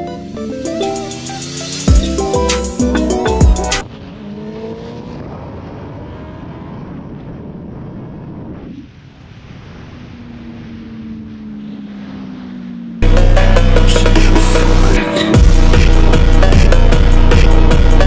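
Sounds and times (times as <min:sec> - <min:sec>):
motorcycle engine accelerating: 0:00.0 - 0:09.1, 0:10.0 - 0:18.0
wind rush: 0:05.0 - 0:12.6.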